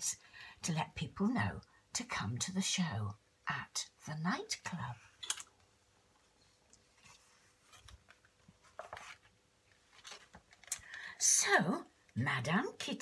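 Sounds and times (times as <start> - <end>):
book pages turning: 6.8 - 10.7.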